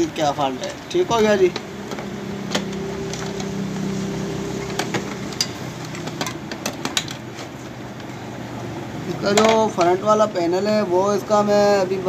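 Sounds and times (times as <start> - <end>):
steady low hum: 0.7 - 9.1.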